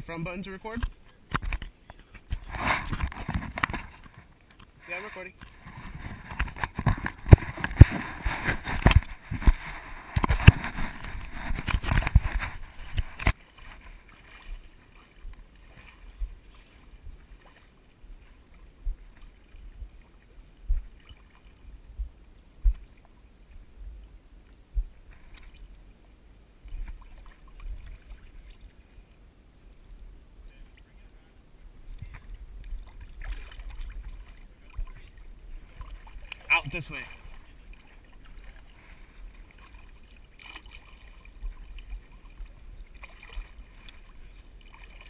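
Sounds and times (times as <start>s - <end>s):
faint low thumps: 16.0s - 17.4s, 18.0s - 21.0s, 21.6s - 25.6s.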